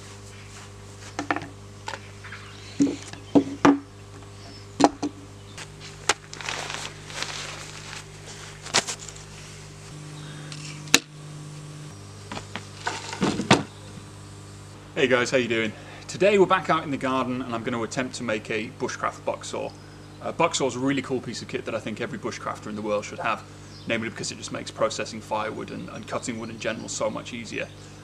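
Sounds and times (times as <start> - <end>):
steady low hum: 0.0 - 28.0
rustling: 5.6 - 10.0.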